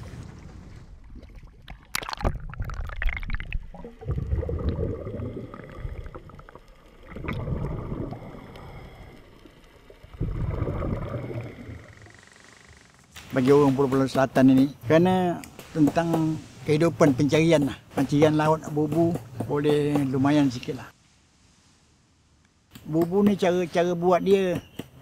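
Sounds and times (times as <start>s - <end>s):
water splash: 0.0s - 9.0s, 10.0s - 11.9s
muffled underwater gurgling: 2.8s - 9.2s, 10.1s - 12.0s.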